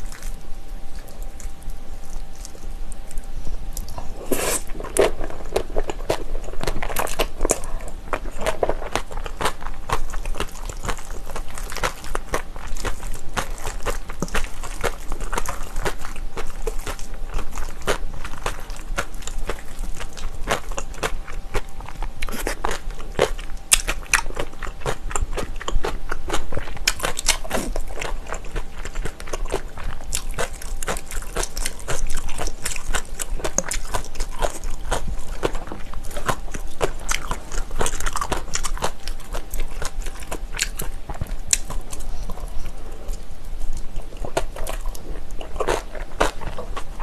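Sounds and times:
crunchy chewing: 0.0s - 47.0s.

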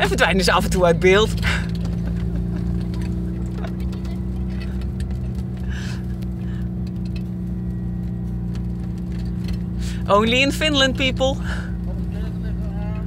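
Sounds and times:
van engine running: 0.0s - 13.0s
small clicks and rattles: 1.3s - 9.7s.

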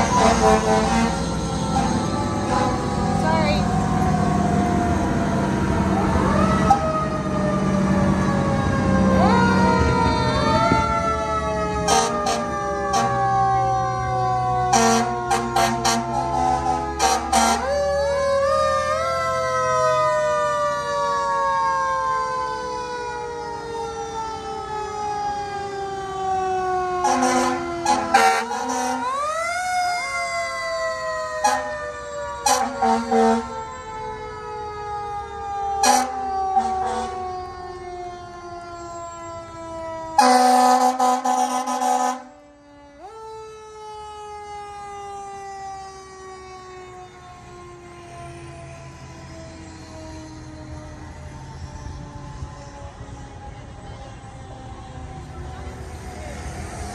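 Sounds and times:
loud horn blast: 0.0s - 3.4s, 11.8s - 13.2s, 14.7s - 17.8s, 27.0s - 29.2s, 32.4s - 33.6s, 35.8s - 37.2s, 40.2s - 42.3s
fire truck siren falling tone: 0.0s - 56.9s.

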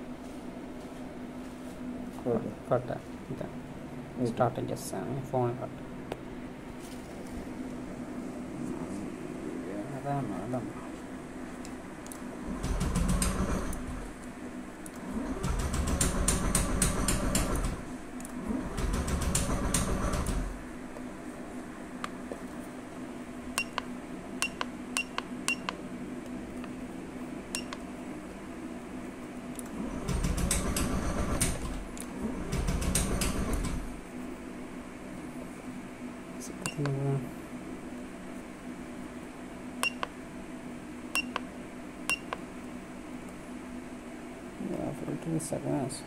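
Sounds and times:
faint steady hum: 0.0s - 46.0s
button clicks: 39.8s - 40.1s.

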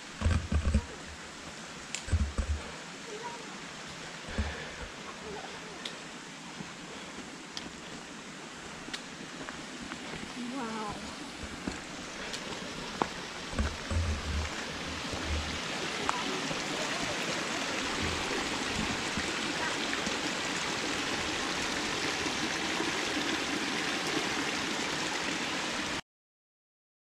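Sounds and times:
mountain stream rushing: 0.0s - 26.0s
low thumps: 2.1s - 2.7s, 13.5s - 15.6s.

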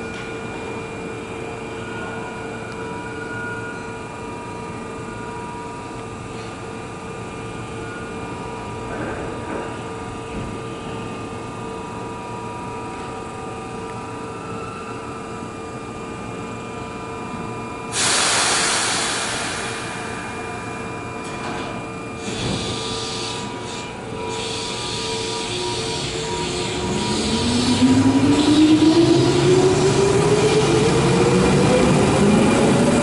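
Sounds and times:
compressed air hissing: 17.9s - 19.9s.

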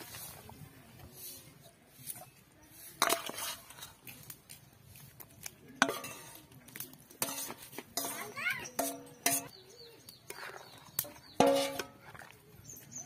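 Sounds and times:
metal spatula scraping steel bowl: 2.0s - 4.0s, 5.8s - 6.4s, 7.1s - 9.6s, 10.3s - 12.3s.

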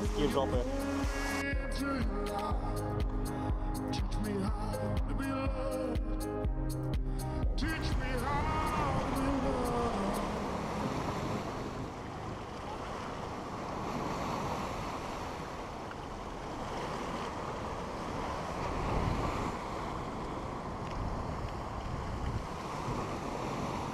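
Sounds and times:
wind buffeting microphone: 7.4s - 23.9s.

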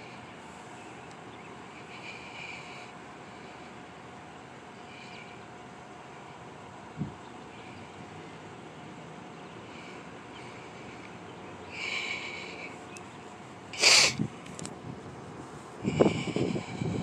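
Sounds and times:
outdoor hiss: 0.0s - 17.0s
person sniffing: 13.8s - 14.2s.

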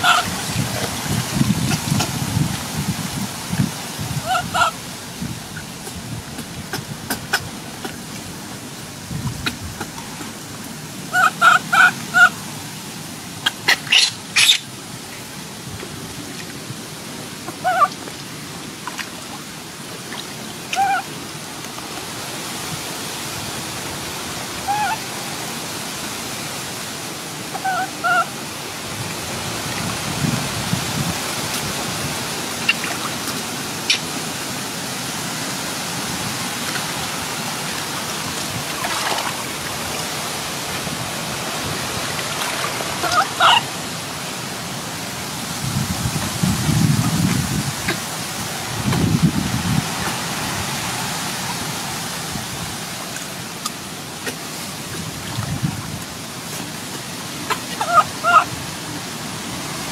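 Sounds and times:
baby monkey crying: 0.0s - 0.3s, 4.2s - 4.8s, 11.1s - 12.4s, 24.6s - 25.0s, 27.6s - 28.3s, 43.0s - 43.7s, 57.5s - 58.5s
rushing water: 0.0s - 59.9s.

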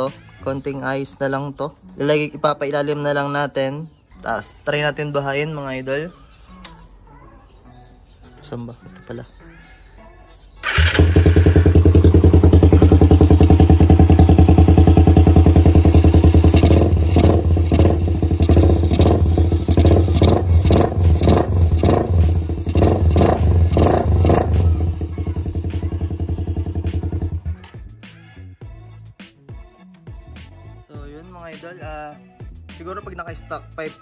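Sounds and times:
electric starter: 10.6s - 24.5s
motorcycle engine idling and revving: 10.6s - 27.9s.

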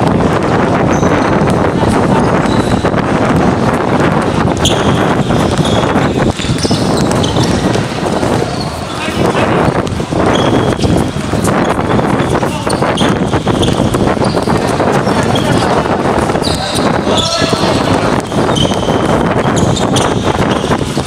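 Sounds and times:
basketball bouncing on court: 0.0s - 21.0s
sneakers squeaking: 0.0s - 21.0s
players calling out: 4.3s - 20.7s.

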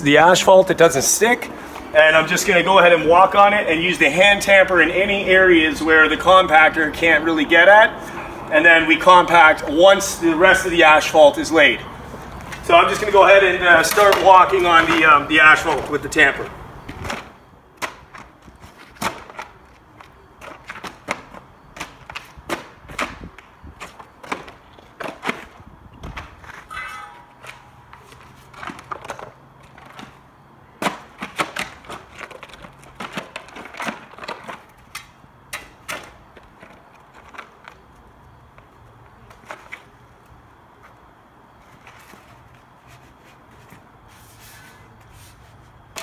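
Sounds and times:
wooden shoes clacking on gravel: 12.4s - 16.2s.

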